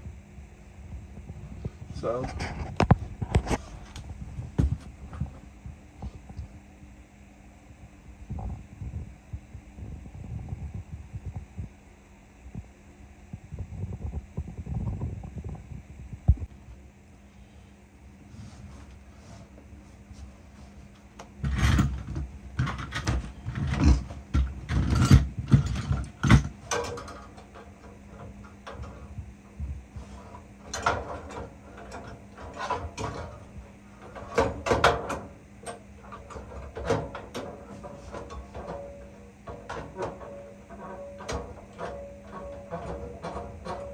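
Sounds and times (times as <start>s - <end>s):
faint steady hum: 0.0s - 43.9s
metal knocking and scraping: 21.2s - 43.9s.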